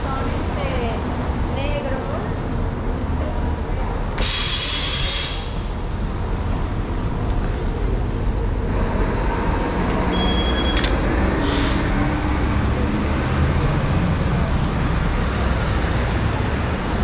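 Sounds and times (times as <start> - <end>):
traffic rumble: 0.0 - 17.0
sharp click: 10.7 - 11.0.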